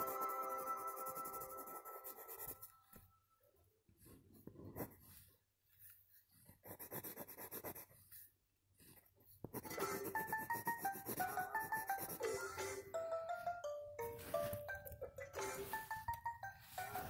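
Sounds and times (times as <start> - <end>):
pencil scribbling on paper: 0.0 - 3.0, 4.0 - 12.5.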